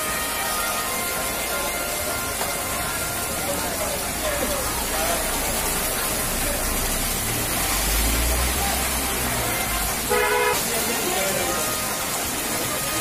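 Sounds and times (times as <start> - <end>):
heavy rain on a wet street: 0.0 - 13.0
vehicle horn toot: 10.1 - 10.7.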